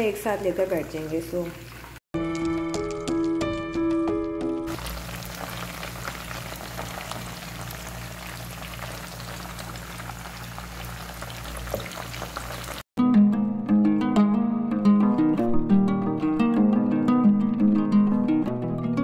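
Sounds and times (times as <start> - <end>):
chicken sizzling in hot oil: 4.7 - 12.9.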